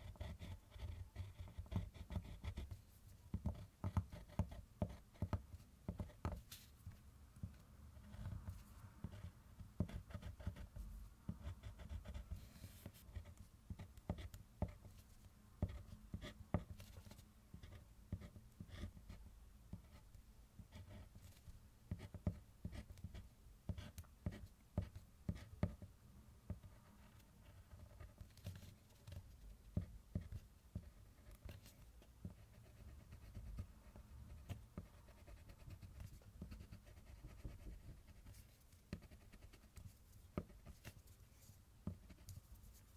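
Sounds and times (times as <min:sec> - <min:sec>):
pencil scratching on paper: 0:00.0 - 0:06.7, 0:08.0 - 0:15.0, 0:26.5 - 0:41.0.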